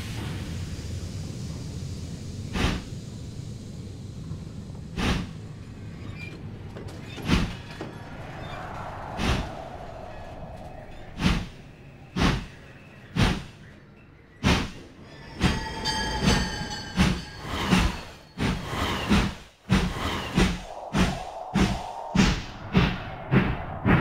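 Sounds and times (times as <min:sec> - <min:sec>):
high squealing metallic ringing: 0:13.8 - 0:19.1.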